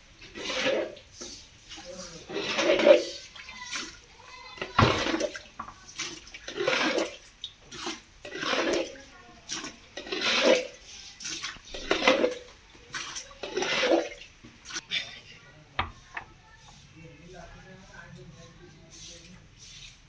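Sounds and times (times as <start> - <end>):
water splashing into bucket: 0.2 - 14.9.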